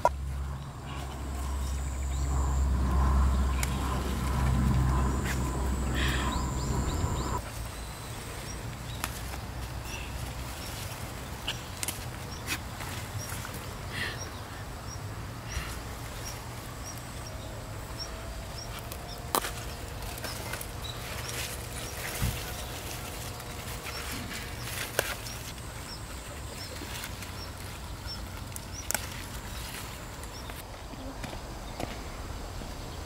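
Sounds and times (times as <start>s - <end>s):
low steady rumble: 0.0s - 30.6s
plant stalks snapping: 9.0s - 9.4s, 11.5s - 12.7s, 18.8s - 25.6s, 28.4s - 30.6s.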